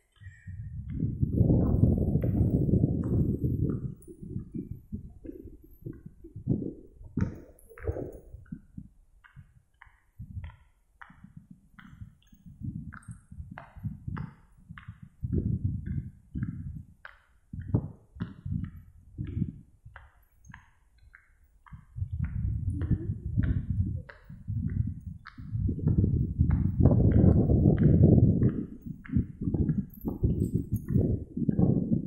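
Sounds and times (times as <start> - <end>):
wind rumbling on microphone: 0.0 - 32.0.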